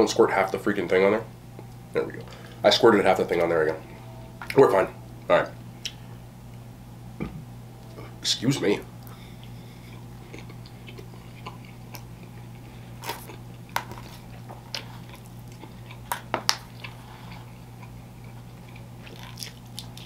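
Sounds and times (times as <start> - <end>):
steady low hum: 0.0 - 20.0
person chewing food: 9.0 - 20.0.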